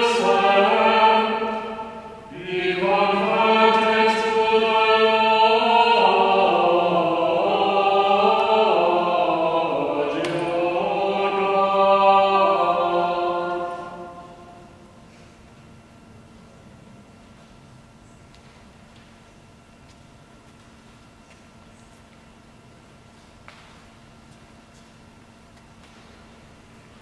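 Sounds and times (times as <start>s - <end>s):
voices singing a slow chant: 0.0s - 14.9s
low held drone note: 0.0s - 15.0s.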